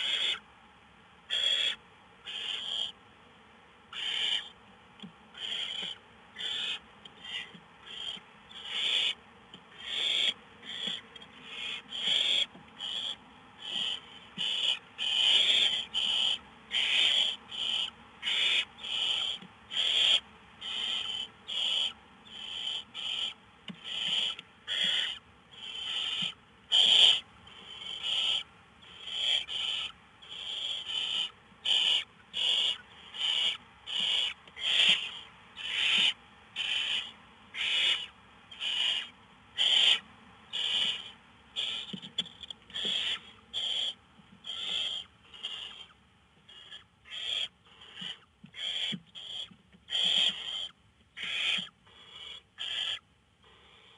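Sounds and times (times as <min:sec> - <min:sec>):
owlets hissing begging calls: 0:00.0 - 0:00.4, 0:01.3 - 0:03.0, 0:03.9 - 0:04.5, 0:05.4 - 0:42.0, 0:42.7 - 0:45.9, 0:46.5 - 0:53.9.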